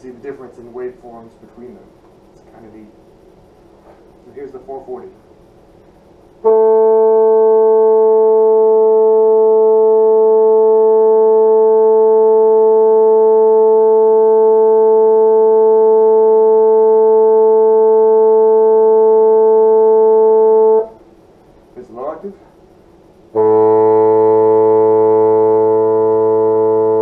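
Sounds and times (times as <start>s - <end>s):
bassoon holding long note: 6.4s - 21.0s, 23.3s - 27.0s.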